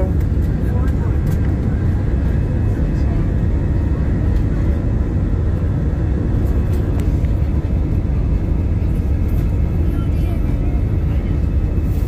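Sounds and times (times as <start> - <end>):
jet engines and wheels roaring: 0.0 - 12.0.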